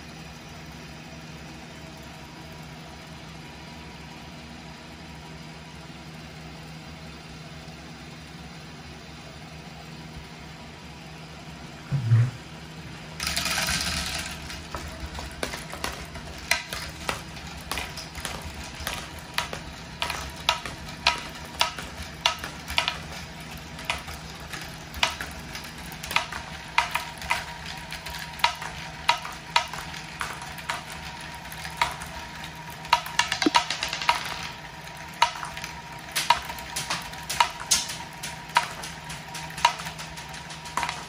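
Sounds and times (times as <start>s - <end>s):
steady low hum: 10.2s - 41.0s
balls clicking and clattering: 13.2s - 41.0s
plastic balls rattling: 13.2s - 41.0s.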